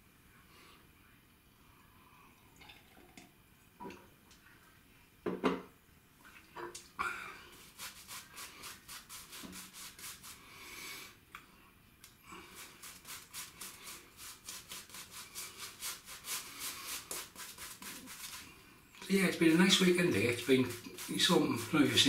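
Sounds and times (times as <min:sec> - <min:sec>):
shaving brush scrubbing lather: 0:07.5 - 0:10.6, 0:12.4 - 0:22.0.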